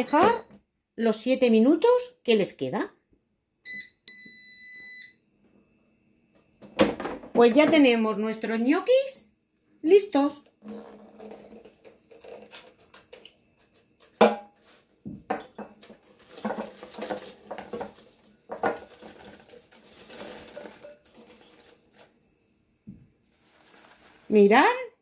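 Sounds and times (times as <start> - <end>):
gnocchi clattering into glass bowl: 16.3 - 21.7.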